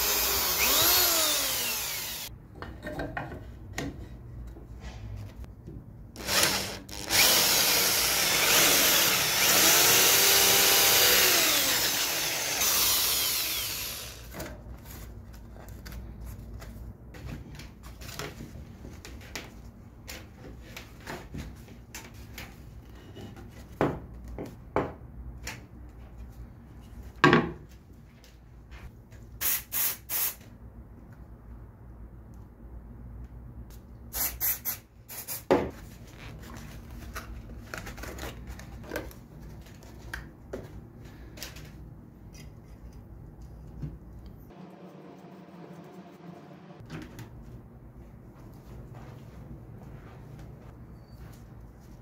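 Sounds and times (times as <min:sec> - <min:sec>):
power tool working wood: 0:00.0 - 0:02.3, 0:06.2 - 0:14.3.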